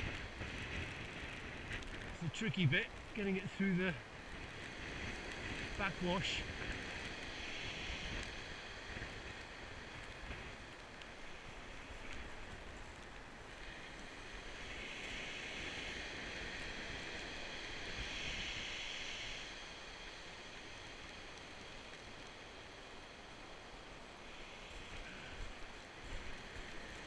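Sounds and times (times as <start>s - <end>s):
wind: 0.0s - 27.0s
sea surf breaking on shingle: 5.1s - 6.5s.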